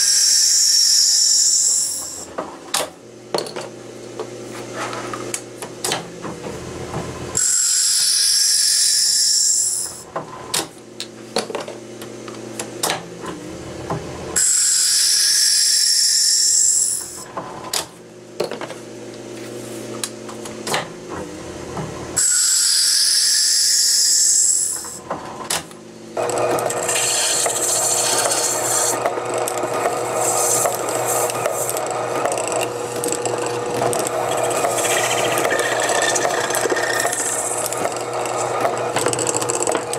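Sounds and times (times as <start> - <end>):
lathe tool cutting: 0.0 - 2.2, 7.4 - 10.0, 14.4 - 17.2, 22.2 - 25.0, 26.2 - 39.9
abrasive sanding scrape: 26.8 - 29.0, 30.0 - 31.8, 34.1 - 38.5.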